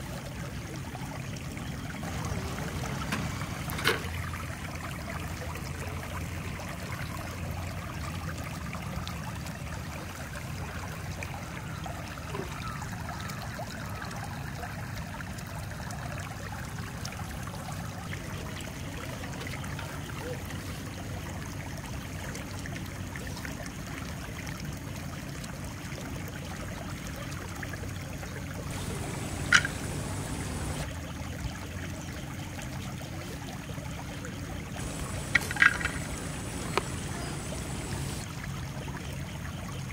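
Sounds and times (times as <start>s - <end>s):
stream water trickling: 0.0s - 39.9s
faint clicks: 28.7s - 30.8s, 34.8s - 38.2s.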